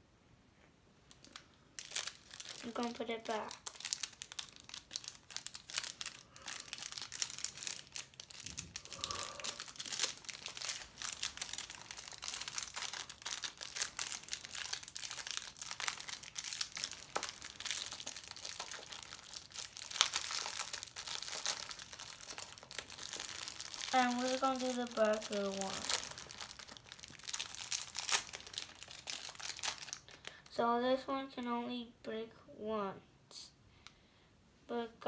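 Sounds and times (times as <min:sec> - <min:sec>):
plastic wrapper crinkling: 0:01.0 - 0:30.5.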